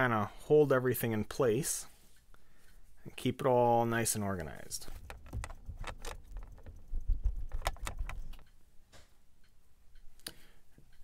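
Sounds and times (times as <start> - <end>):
rope rustling and clicking: 4.2 - 8.6.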